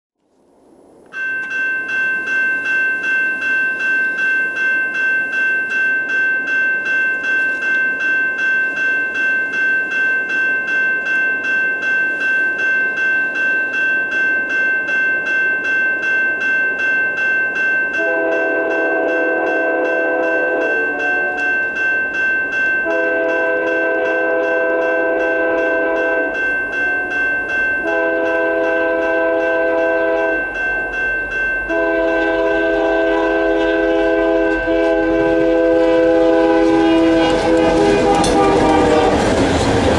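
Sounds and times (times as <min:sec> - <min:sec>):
freight train rumble: 0:00.4 - 0:39.9
railroad crossing bell ringing: 0:01.1 - 0:39.9
locomotive air horn: 0:18.0 - 0:21.8, 0:22.8 - 0:30.4, 0:31.7 - 0:39.4.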